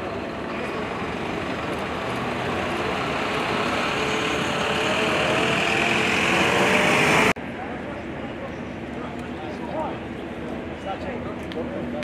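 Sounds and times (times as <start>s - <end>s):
motor vehicle rumble: 0.0s - 9.2s
faint voices: 0.0s - 12.0s.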